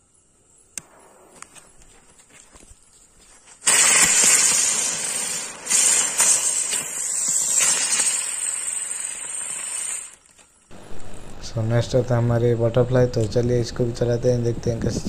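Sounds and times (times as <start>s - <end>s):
fireworks spraying sparks hiss: 3.5s - 10.4s
fuse fizzing: 3.6s - 10.4s.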